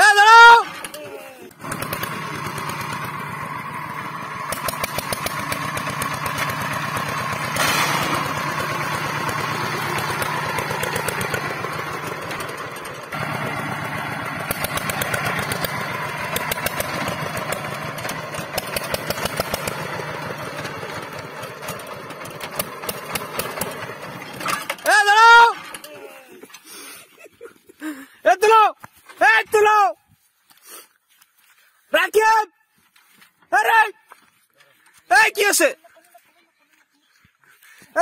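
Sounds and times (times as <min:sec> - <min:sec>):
diesel engine chugging: 0:00.0 - 0:27.1.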